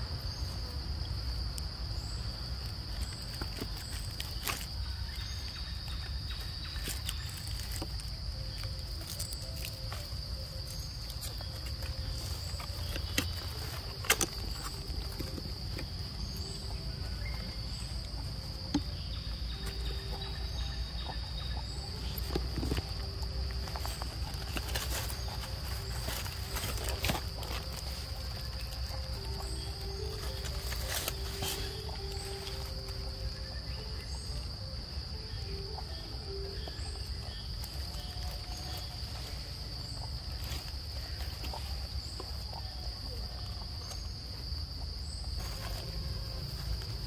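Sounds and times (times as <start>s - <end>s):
insects droning: 0.0s - 47.0s.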